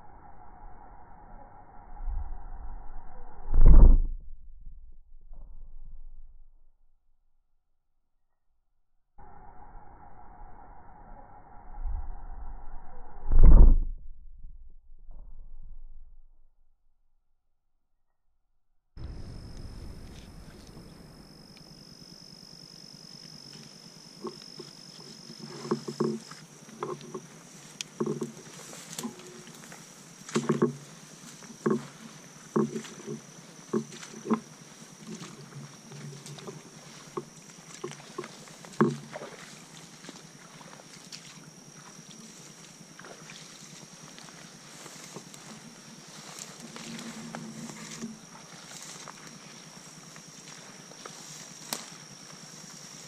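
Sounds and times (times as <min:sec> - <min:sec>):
high-pitched insect drone: 0:00.0 - 0:03.5, 0:09.2 - 0:13.4, 0:19.0 - 0:53.0
footsteps through tall grass: 0:22.6 - 0:53.0.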